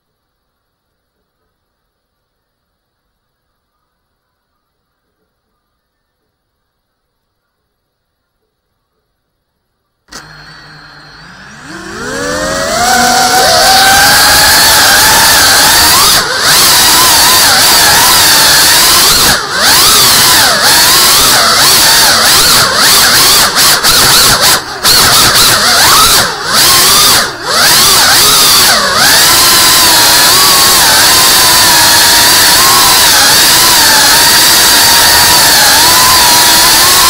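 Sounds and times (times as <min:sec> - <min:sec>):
drone motors whining: 0:10.1 - 0:37.0.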